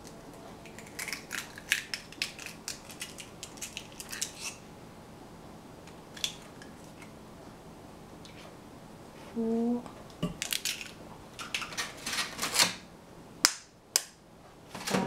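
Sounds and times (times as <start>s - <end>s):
eggshell cracking: 0.6s - 4.6s.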